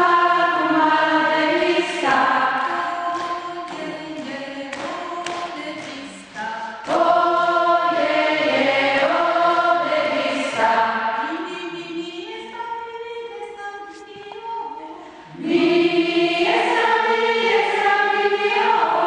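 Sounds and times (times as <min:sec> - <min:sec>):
women singing together: 0:00.0 - 0:19.0
hand claps: 0:00.5 - 0:10.8, 0:16.5 - 0:19.0.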